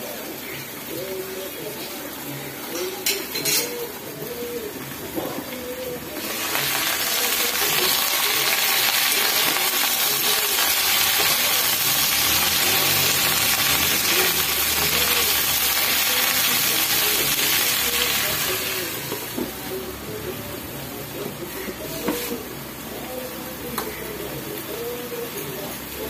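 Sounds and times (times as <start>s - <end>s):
vegetables frying in hot oil: 0.0s - 20.4s.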